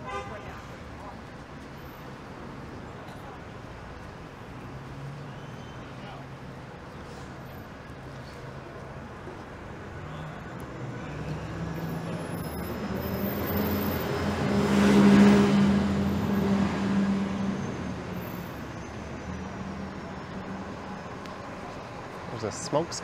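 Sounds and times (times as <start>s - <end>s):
vehicle passing by: 9.9s - 23.0s.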